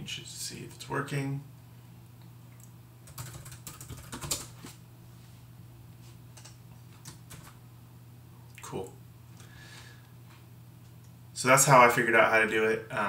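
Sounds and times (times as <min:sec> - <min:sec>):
keyboard keys tapping: 0:03.1 - 0:04.6.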